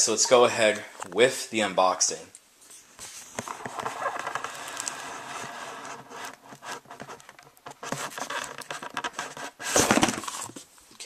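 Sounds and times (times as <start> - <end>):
cardboard box rubbing and scraping: 3.3 - 10.5.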